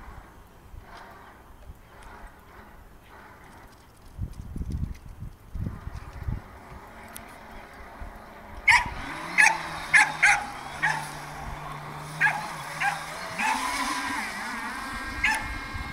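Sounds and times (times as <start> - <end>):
electric boat motor humming: 0.0 - 15.9
dog barking and yelping: 8.7 - 11.3, 12.2 - 13.9, 15.2 - 15.5.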